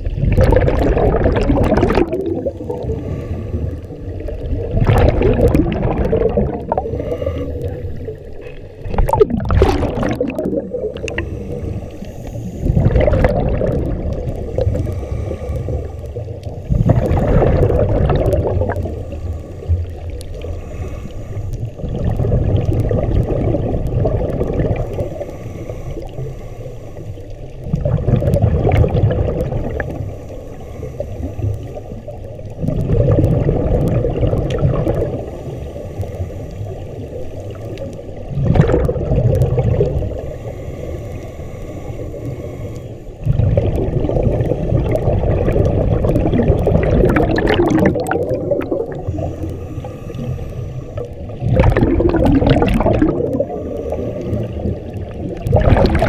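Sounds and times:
exhaled bubbles rumbling: 0.0 - 56.0
regulator inhalations: 2.5 - 4.0, 6.8 - 8.6, 11.0 - 13.0, 14.4 - 17.3, 18.8 - 21.8, 24.8 - 27.5, 29.8 - 31.9, 40.1 - 43.2, 49.0 - 51.1.

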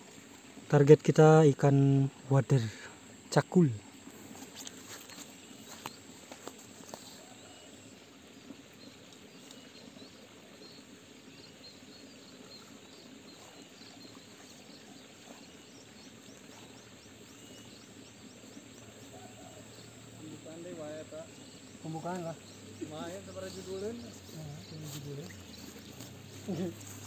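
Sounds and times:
steady low hiss: 0.0 - 27.0
insect ticking trill: 3.1 - 27.0
small bird chirping: 8.4 - 27.0.

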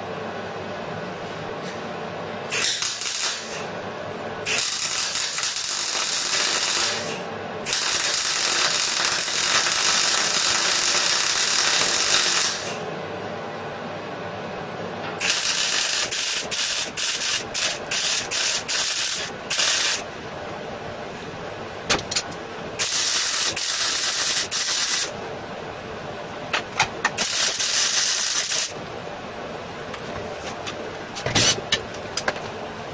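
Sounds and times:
welding arc crackling: 2.5 - 3.7, 4.4 - 12.8, 15.2 - 20.1, 22.1 - 25.2, 27.0 - 28.9.

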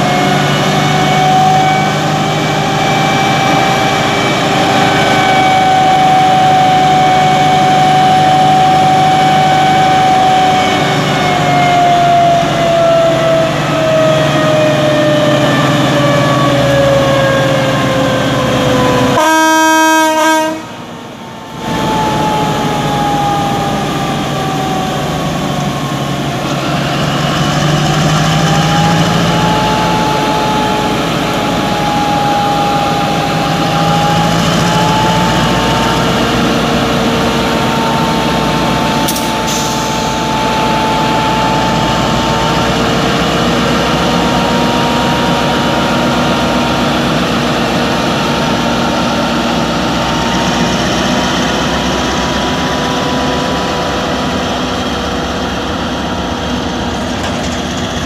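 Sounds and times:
locomotive horn blast: 0.0 - 21.0
locomotive diesel engine running: 0.0 - 58.0.

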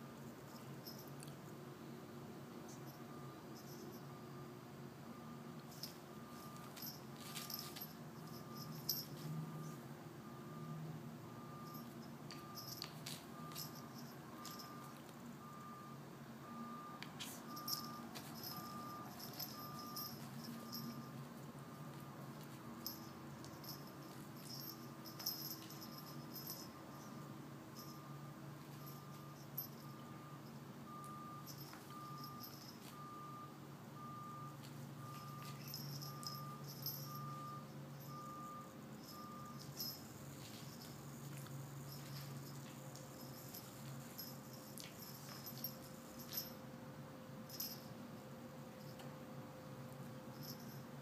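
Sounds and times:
low steady hum: 0.0 - 51.0
reversing alarm beeping: 5.1 - 21.9, 27.8 - 40.2
rustles and clicks on rug: 5.6 - 9.8, 11.8 - 15.2, 17.0 - 26.7, 31.0 - 33.1, 34.6 - 37.0, 39.1 - 46.6.

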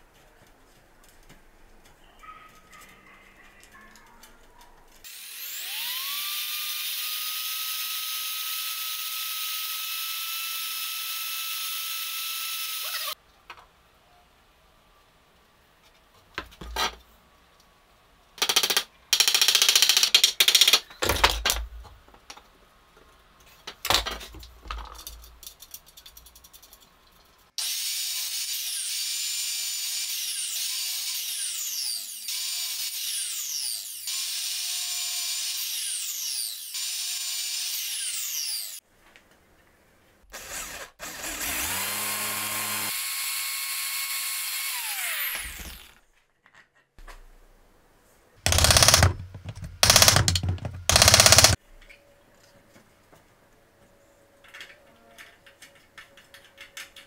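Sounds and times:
power tool spinning: 5.0 - 13.2, 40.3 - 46.0, 48.5 - 51.6
electric miter saw running: 5.1 - 13.2, 41.0 - 46.0, 48.5 - 51.6
wooden parts knocking and clattering: 18.4 - 22.5, 23.6 - 27.3, 48.5 - 51.6.

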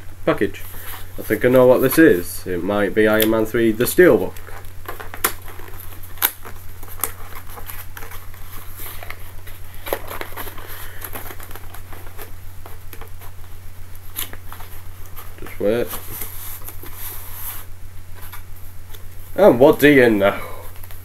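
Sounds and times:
steady low hum: 0.0 - 21.0
packaging crinkling and tearing: 3.2 - 19.1.

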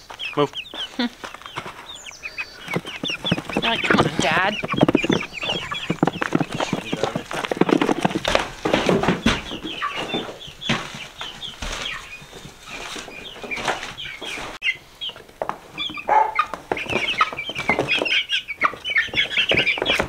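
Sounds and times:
chicks cheeping and clucking: 0.0 - 20.0
wings flapping: 1.2 - 14.6, 16.4 - 20.0
plastic tote scuffs and knocks: 2.7 - 14.6.

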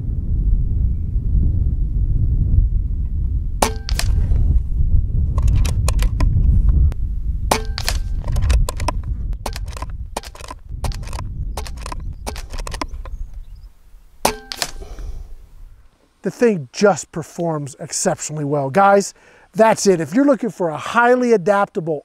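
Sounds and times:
wind rumble on microphone: 0.0 - 15.9
air rifle shots cracking: 3.6 - 4.5, 7.5 - 13.1, 14.2 - 15.2.

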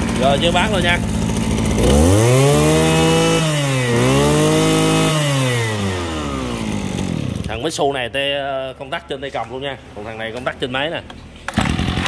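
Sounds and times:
brush cutter engine revving: 0.0 - 7.7, 11.5 - 12.0.

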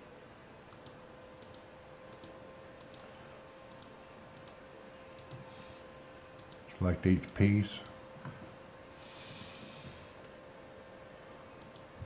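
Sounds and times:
thin steady hum: 0.0 - 12.0
faint computer mouse clicks: 0.7 - 3.1, 3.7 - 4.6, 5.2 - 5.5, 6.4 - 7.4, 11.6 - 11.9.

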